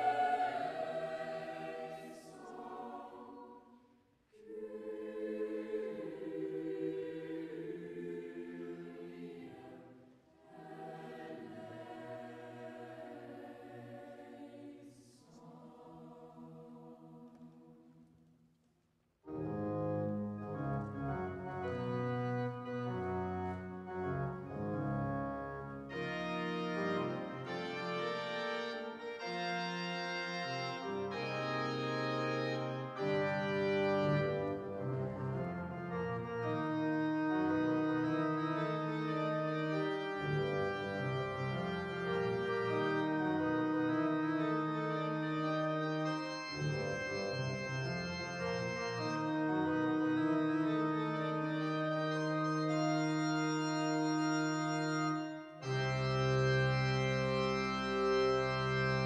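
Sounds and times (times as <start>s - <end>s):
church organ chords: 0.0s - 3.3s, 19.3s - 59.0s
boys' choir chord: 0.0s - 3.6s.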